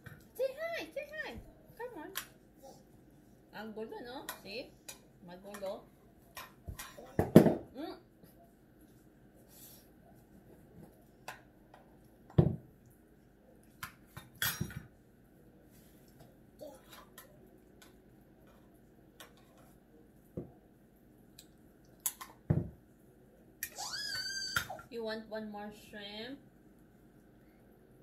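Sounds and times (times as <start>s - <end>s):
bowls and cutlery clinking: 13.8s - 15.0s.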